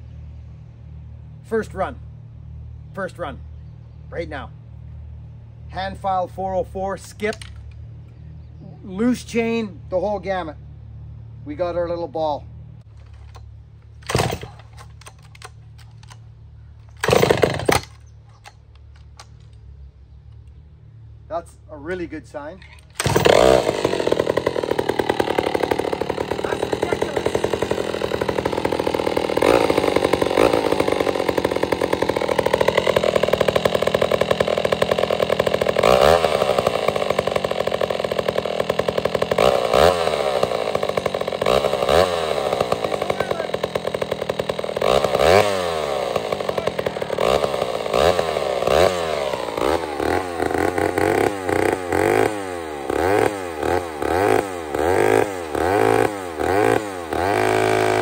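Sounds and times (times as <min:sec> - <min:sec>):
chainsaw revving: 0:11.5 - 0:19.7, 0:21.6 - 0:58.0
chainsaw cutting into log: 0:13.1 - 0:16.2, 0:16.9 - 0:18.6, 0:22.8 - 0:58.0.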